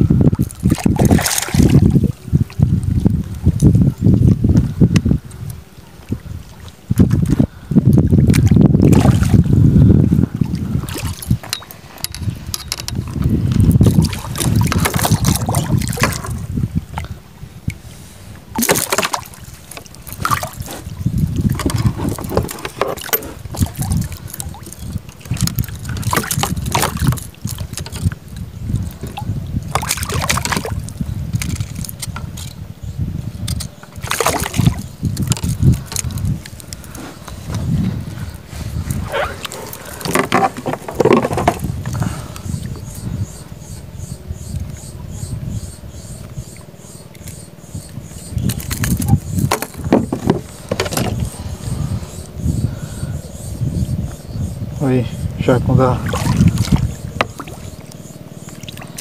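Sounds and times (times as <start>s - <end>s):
water slapping against hull: 0.0s - 32.7s, 33.4s - 43.5s, 46.2s - 53.2s, 53.8s - 59.0s
wind buffeting microphone: 0.0s - 59.0s
knocks and clicks: 40.0s - 41.7s.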